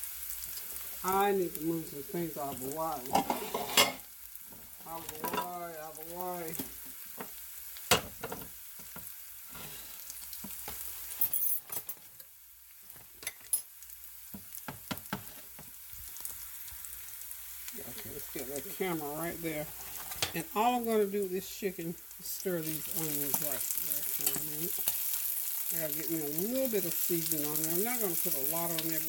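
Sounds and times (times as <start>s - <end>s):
onions sizzling in a skillet: 0.0s - 11.3s, 12.0s - 29.0s
dishes and utensils clinking: 3.1s - 4.0s, 5.0s - 5.6s.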